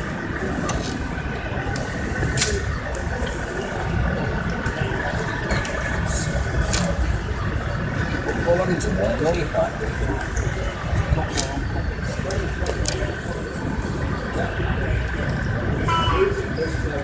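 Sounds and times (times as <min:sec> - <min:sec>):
indistinct voices: 0:09.7 - 0:17.0.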